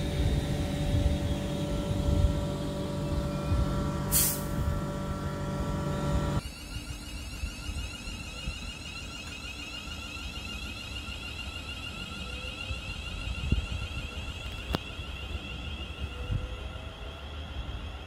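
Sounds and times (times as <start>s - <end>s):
low rumble: 0.0s - 6.4s
train electrical whine: 0.0s - 18.0s.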